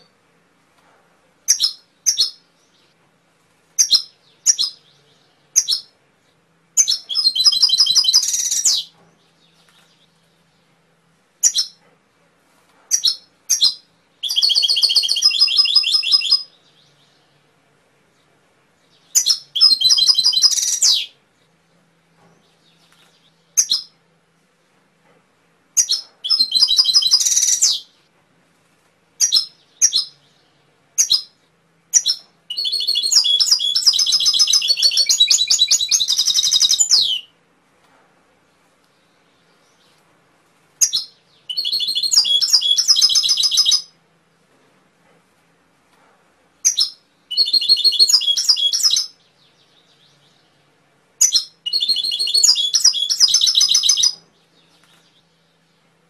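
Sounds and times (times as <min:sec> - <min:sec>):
canary chirps: 0:01.4 - 0:03.0, 0:03.6 - 0:12.0, 0:12.6 - 0:21.6, 0:22.2 - 0:24.0, 0:25.7 - 0:28.1, 0:29.2 - 0:37.4, 0:40.8 - 0:44.0, 0:46.6 - 0:56.0
canary singing trills: 0:01.5 - 0:03.0, 0:03.8 - 0:06.0, 0:06.7 - 0:10.8, 0:11.4 - 0:11.9, 0:12.9 - 0:17.5, 0:18.2 - 0:21.2, 0:22.4 - 0:24.0, 0:25.7 - 0:28.0, 0:29.2 - 0:37.4, 0:40.8 - 0:44.0, 0:46.6 - 0:55.9.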